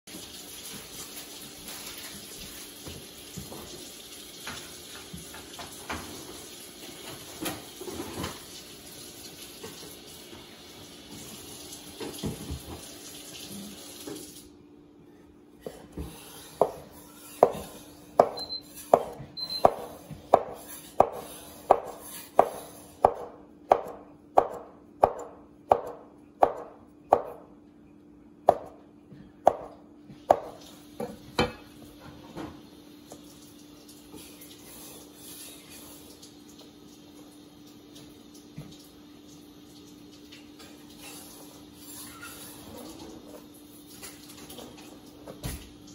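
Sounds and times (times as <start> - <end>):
cleaver chopping on wooden board: 17.4 - 27.4.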